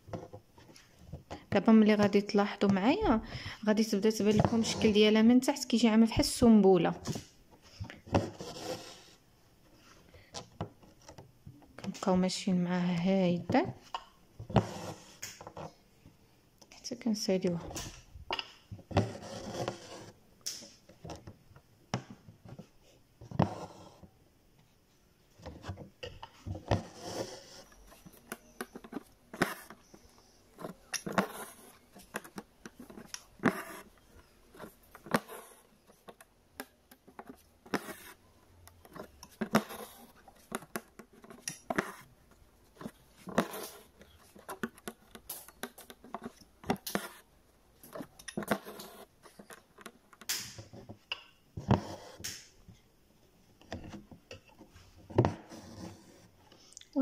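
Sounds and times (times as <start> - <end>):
needle scratching through fabric: 8.2 - 9.2, 19.0 - 20.2, 26.6 - 36.2, 37.0 - 38.3, 38.9 - 42.2, 42.8 - 47.3, 47.9 - 49.9, 55.4 - 56.3.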